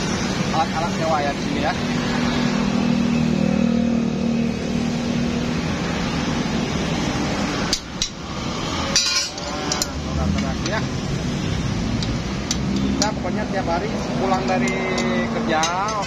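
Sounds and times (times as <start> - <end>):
steady traffic wash: 0.0 - 16.0
vehicle engine hum: 0.0 - 16.0
sharp metallic clicks and knocks: 7.6 - 8.3, 8.9 - 10.9, 11.9 - 13.2, 14.1 - 16.0.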